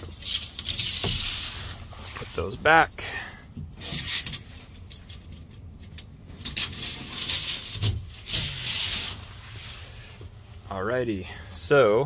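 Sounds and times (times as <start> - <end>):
cloth curtains rustling and swishing: 0.2 - 2.7, 6.8 - 10.4.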